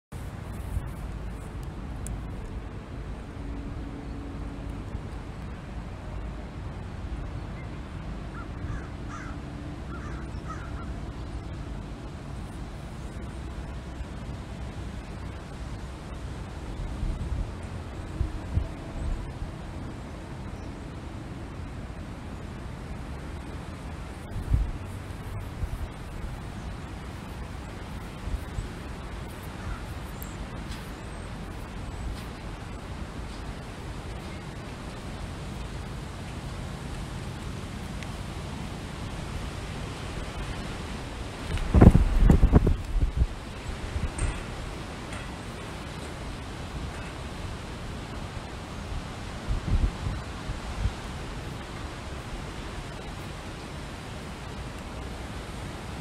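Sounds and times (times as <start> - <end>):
wind blowing: 0.1 - 56.0
distant bird calls: 8.3 - 11.4, 27.5 - 33.5
wind rushing: 41.5 - 43.4.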